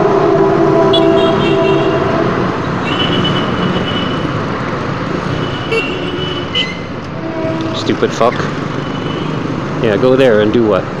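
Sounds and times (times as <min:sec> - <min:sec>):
long steady horn tone: 0:00.0 - 0:04.4, 0:05.3 - 0:08.2
road traffic noise: 0:00.0 - 0:11.0.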